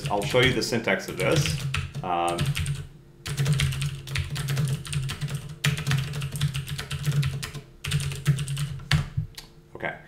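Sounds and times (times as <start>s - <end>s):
typing on computer keyboard: 1.2s - 9.1s.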